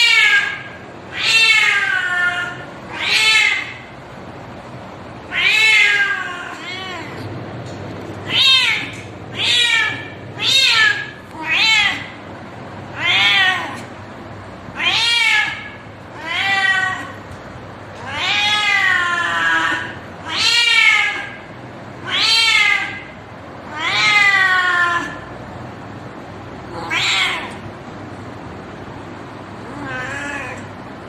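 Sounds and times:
cat yowling: 0.0s - 3.9s, 5.3s - 7.2s, 8.2s - 12.2s, 12.9s - 13.9s, 14.7s - 17.2s, 18.0s - 25.3s, 26.7s - 27.6s, 29.6s - 30.7s.

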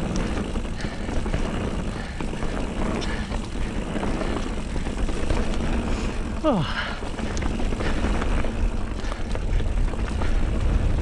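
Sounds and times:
bike tyres rumbling over gravel: 0.0s - 11.0s
stones and bike rattling: 0.0s - 11.0s
wind buffeting microphone: 0.0s - 11.0s.

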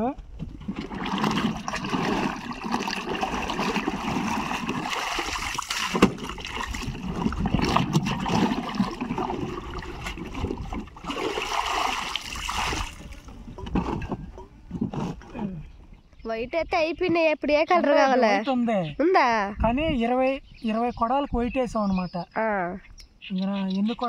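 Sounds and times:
water splashing and sloshing: 0.3s - 15.3s.

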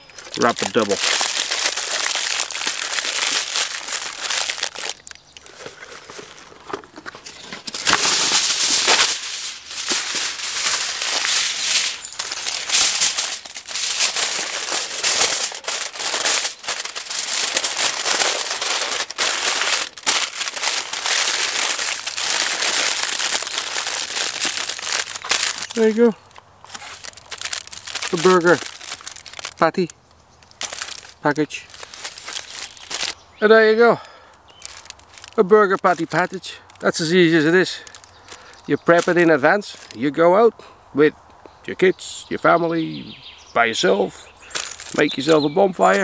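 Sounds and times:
aluminium foil crinkling: 0.0s - 33.2s, 34.0s - 40.0s, 44.4s - 46.0s.

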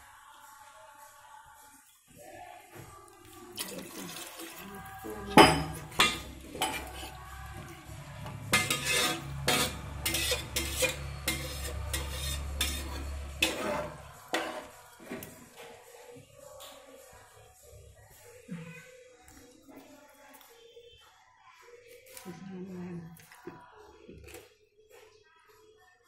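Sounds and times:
spatula scraping a pot: 3.6s - 15.4s.

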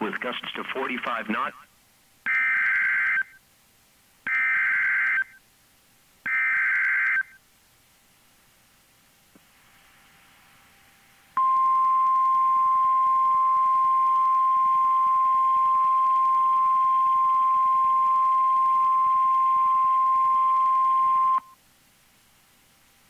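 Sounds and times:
high alarm tone: 11.4s - 21.5s.

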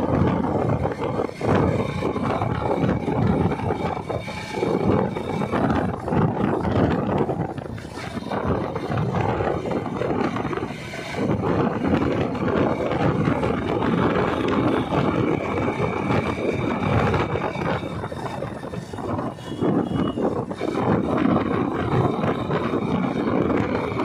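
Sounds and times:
motorcycle engine running: 0.0s - 24.0s
wind buffeting microphone: 0.0s - 24.0s.

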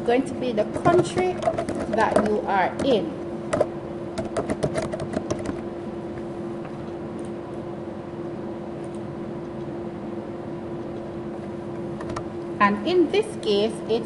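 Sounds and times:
steady hum: 0.0s - 14.0s
keyboard typing: 0.8s - 5.6s.

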